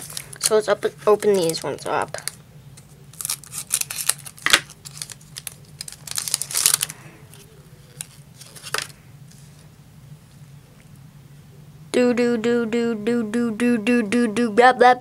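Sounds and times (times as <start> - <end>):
foil wrapper crinkling: 0.0 - 9.0
scissors cutting foil pack: 3.1 - 8.9.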